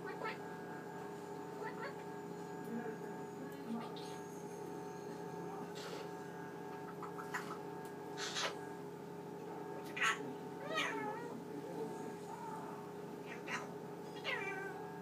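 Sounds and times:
parrot calls: 0.0 - 0.5, 1.6 - 2.0, 6.7 - 8.7, 9.8 - 11.4, 12.3 - 14.8
refrigerator humming: 0.0 - 15.0.

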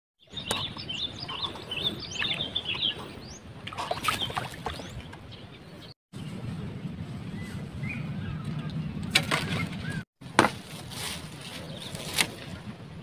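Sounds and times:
small birds chirping: 0.2 - 6.3
steady low rumble: 6.2 - 9.1.

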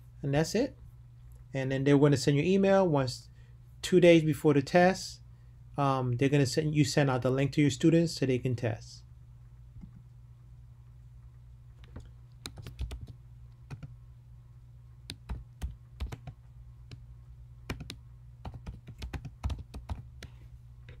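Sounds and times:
steady low hum: 0.0 - 21.0
computer keyboard typing: 11.8 - 14.0, 15.1 - 17.0, 17.7 - 20.3.

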